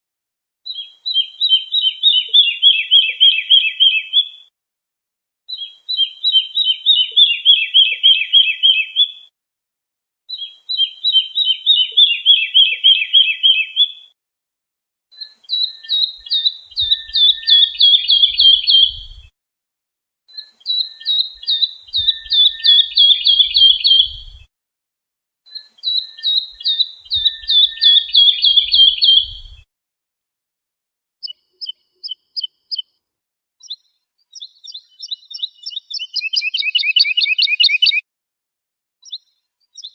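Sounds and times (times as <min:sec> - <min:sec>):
lark singing: 0:00.7 - 0:04.4, 0:05.5 - 0:09.2, 0:10.3 - 0:14.0, 0:15.2 - 0:19.3, 0:20.3 - 0:24.5, 0:25.5 - 0:29.6, 0:31.2 - 0:32.9, 0:33.6 - 0:38.0, 0:39.0 - 0:39.9.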